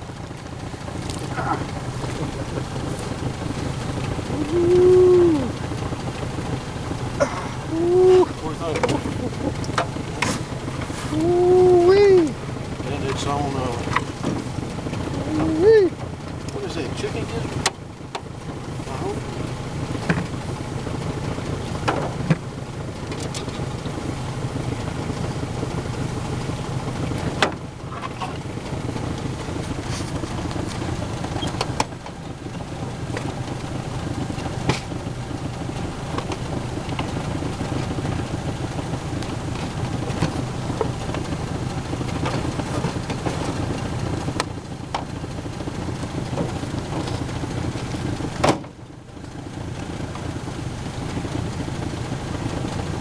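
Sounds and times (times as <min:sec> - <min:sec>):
sharp clicks and knocks: 0:21.8 - 0:22.4.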